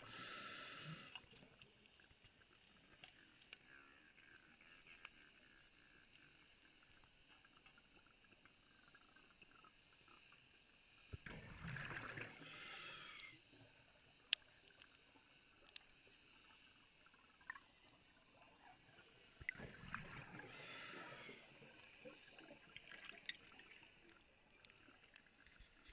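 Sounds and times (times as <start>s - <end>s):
faint crackle: 0.0s - 25.9s
underwater air bubbling: 11.2s - 13.4s, 19.0s - 24.2s.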